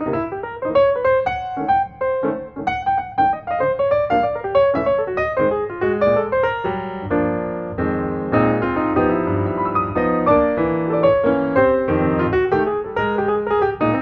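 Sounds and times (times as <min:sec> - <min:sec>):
piano music: 0:00.0 - 0:14.0.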